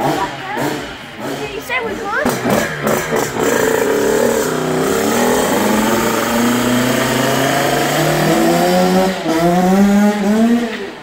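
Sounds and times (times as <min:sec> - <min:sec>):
dirt bike engine revving: 0:00.0 - 0:10.8.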